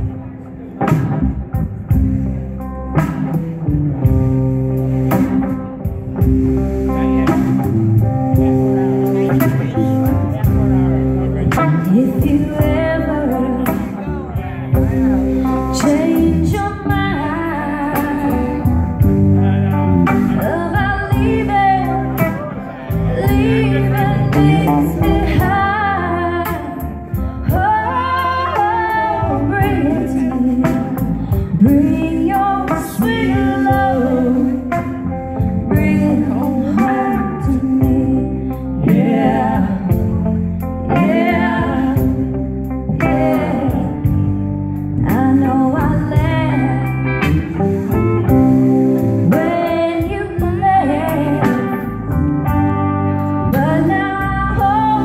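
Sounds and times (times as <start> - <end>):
live rock band playing: 0.0 - 55.0
woman singing: 11.5 - 14.1, 15.4 - 18.8, 20.2 - 44.4, 45.0 - 47.5, 49.2 - 52.1, 53.4 - 55.0.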